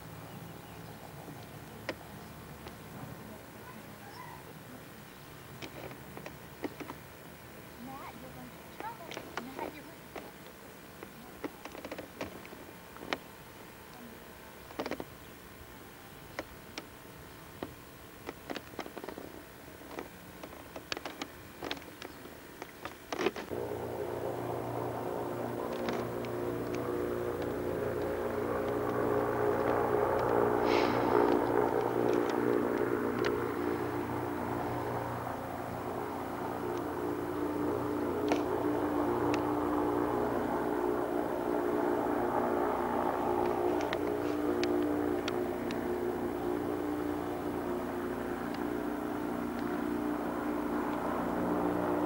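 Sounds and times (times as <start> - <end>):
faint steady hiss: 0.0 - 52.0
propeller engines droning overhead: 0.0 - 52.0
faint clicks: 24.8 - 33.8.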